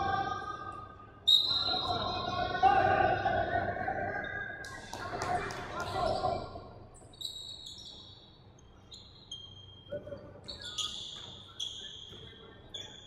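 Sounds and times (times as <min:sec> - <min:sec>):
shoes squeaking on gym floor: 0:07.0 - 0:13.0.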